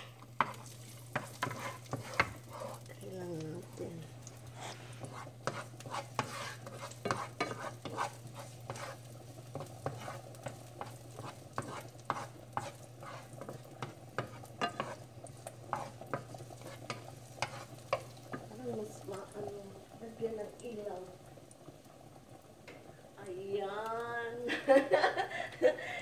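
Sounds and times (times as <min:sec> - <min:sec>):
spatula knocking and scraping pan: 0:00.0 - 0:02.9, 0:05.0 - 0:19.0
garlic sizzling in oil: 0:00.0 - 0:26.0.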